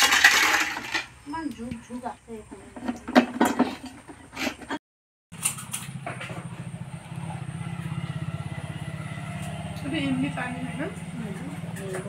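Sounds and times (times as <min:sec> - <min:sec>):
steel plates clinking in bucket: 0:00.0 - 0:01.2
engine idling: 0:05.4 - 0:12.0.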